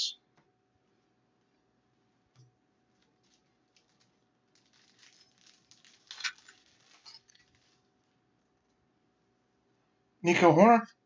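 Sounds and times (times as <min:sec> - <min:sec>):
foil wrapper crinkling: 0:02.9 - 0:08.2.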